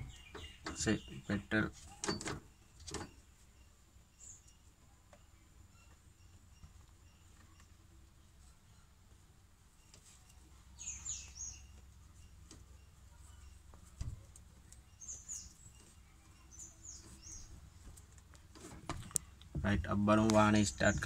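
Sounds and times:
faint bird chirps: 0:00.0 - 0:17.8.

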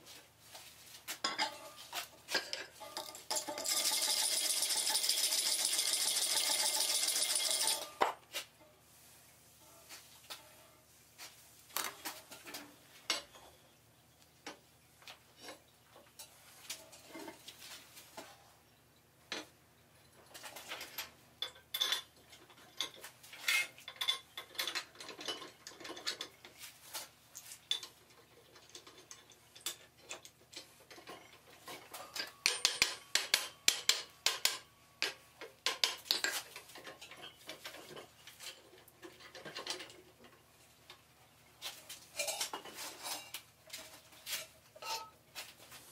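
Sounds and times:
metal tools clinking: 0:02.3 - 0:08.0, 0:42.1 - 0:43.4.

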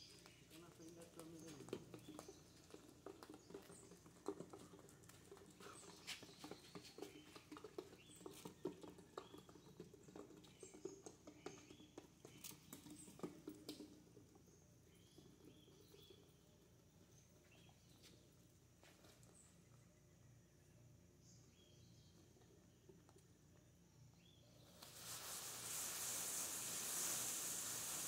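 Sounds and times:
faint ticks and taps: 0:00.1 - 0:16.2.

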